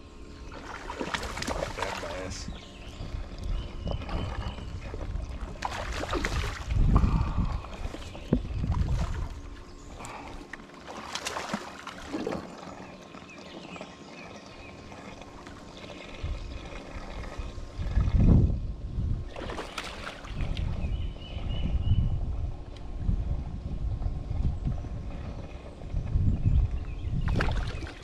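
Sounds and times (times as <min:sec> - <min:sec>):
wind rumbling on microphone: 0:00.0 - 0:10.4, 0:15.9 - 0:28.0
fish splashing in water: 0:00.5 - 0:02.3, 0:04.0 - 0:06.8, 0:10.0 - 0:13.0, 0:19.3 - 0:20.7, 0:27.2 - 0:28.0.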